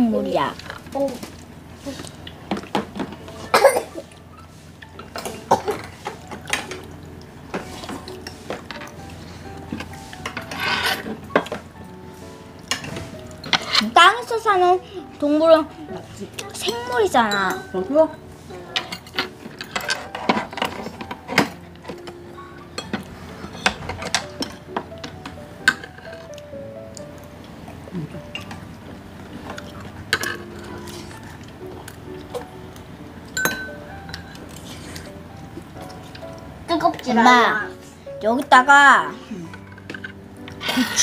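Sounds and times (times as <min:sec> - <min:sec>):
spoons clinking against bowls: 0:12.6 - 0:14.0, 0:16.4 - 0:26.3, 0:28.3 - 0:28.6, 0:29.4 - 0:31.4, 0:33.2 - 0:35.1.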